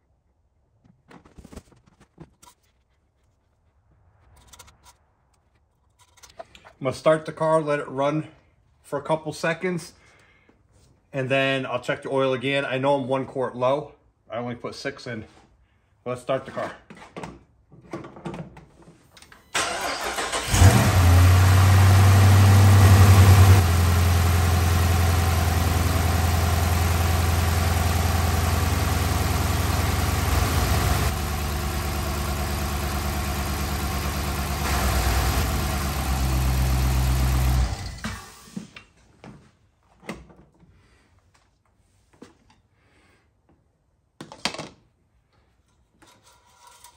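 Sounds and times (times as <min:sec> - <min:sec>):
starter motor cranking: 0:19.6 - 0:23.8, 0:28.0 - 0:38.6
car engine idling: 0:19.7 - 0:38.0.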